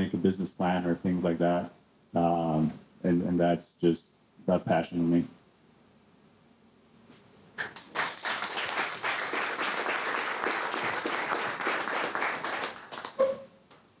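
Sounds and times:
audience applauding: 7.6s - 13.3s.

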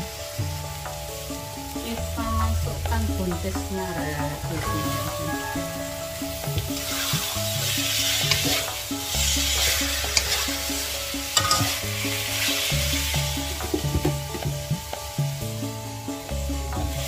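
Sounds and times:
background music with bass line: 0.0s - 17.0s
frying sizzle: 0.0s - 17.0s
spatula scraping a wok: 4.6s - 14.6s
spatula clinking against pan: 11.4s - 11.9s.

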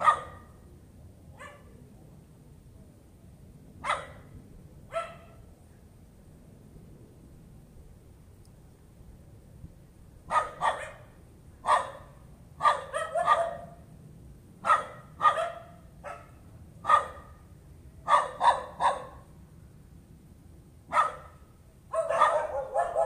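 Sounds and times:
dog barking: 0.0s - 0.5s, 1.4s - 1.8s, 3.8s - 4.3s, 4.9s - 5.4s, 10.3s - 13.8s, 14.6s - 17.4s, 18.1s - 19.2s, 20.9s - 23.0s.

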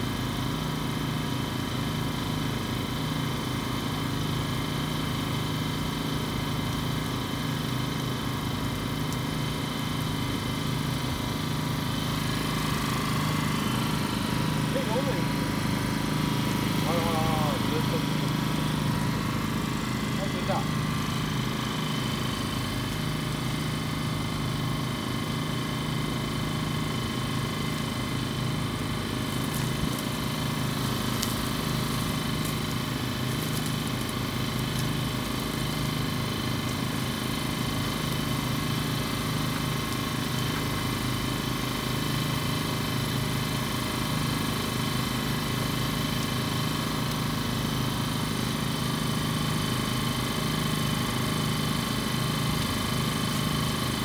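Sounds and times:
machinery drone with whines: 9.8s - 36.8s.

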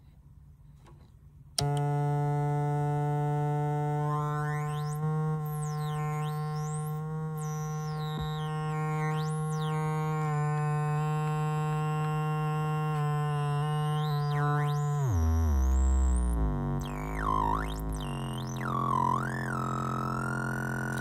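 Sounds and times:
buzzy electronic drone: 1.6s - 21.0s
high-pitched sweeping tones: 4.3s - 21.0s.

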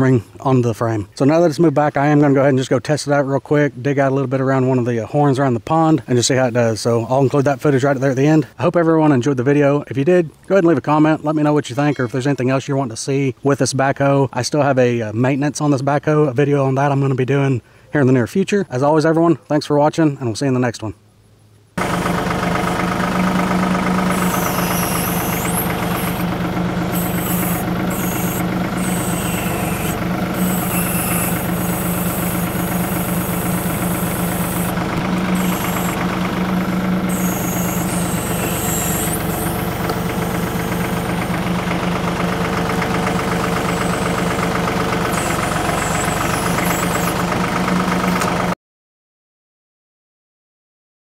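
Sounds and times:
tractor diesel engine running: 21.8s - 48.5s
brief high squeals: 24.0s - 36.0s, 37.0s - 41.4s, 45.0s - 47.2s.

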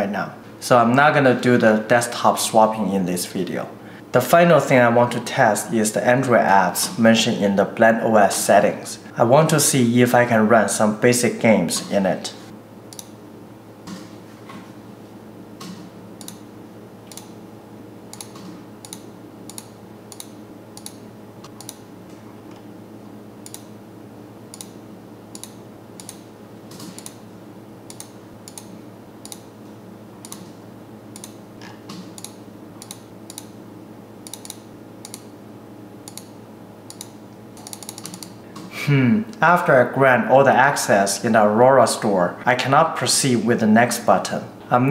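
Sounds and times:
steady low hum: 0.0s - 44.9s
mouse and keyboard clicks: 36.9s - 38.3s.

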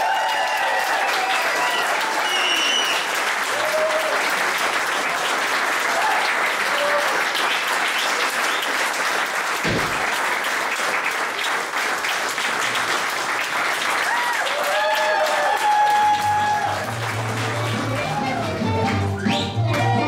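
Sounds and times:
audience applauding: 0.0s - 20.0s
dull thump: 9.6s - 10.2s.

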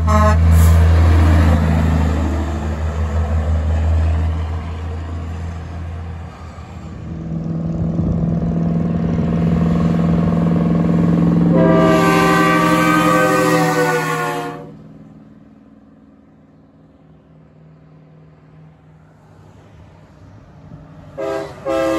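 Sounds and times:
air horn: 0.0s - 0.8s, 11.5s - 14.8s, 21.2s - 21.9s
truck engine approaching: 0.0s - 21.9s
truck engine passing: 0.0s - 21.9s.

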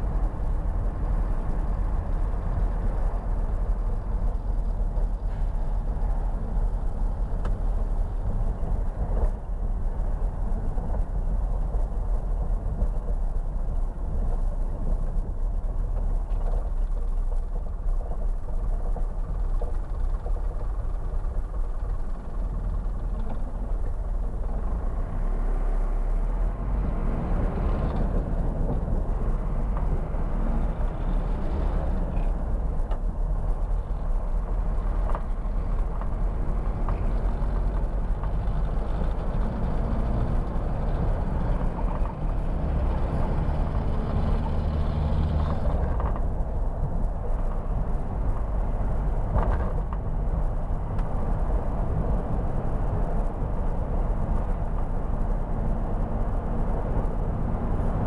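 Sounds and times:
truck diesel engine rumble: 0.0s - 58.0s.

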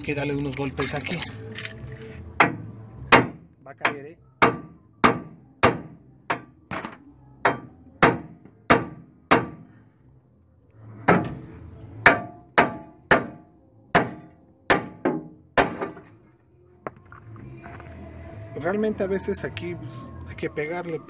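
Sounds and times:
hammer blows ringing on steel: 4.4s - 6.5s, 7.5s - 9.7s, 12.0s - 15.9s.

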